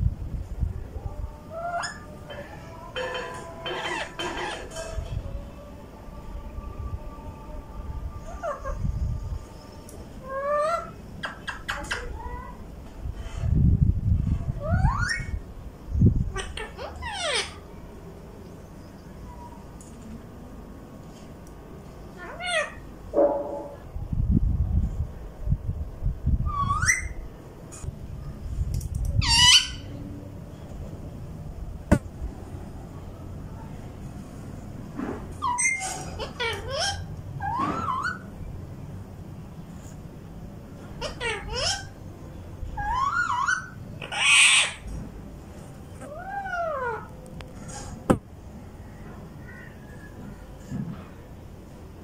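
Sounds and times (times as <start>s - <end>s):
parakeet squawks: 3.6s - 4.8s, 29.2s - 29.9s, 35.4s - 38.2s, 41.0s - 41.9s, 42.8s - 44.8s.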